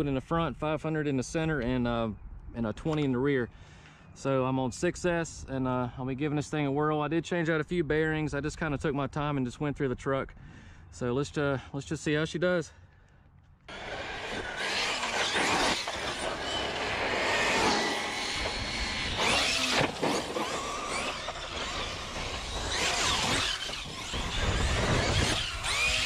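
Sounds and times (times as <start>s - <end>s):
rc car motor whine: 13.7s - 26.0s
steady rushing noise: 13.7s - 26.0s.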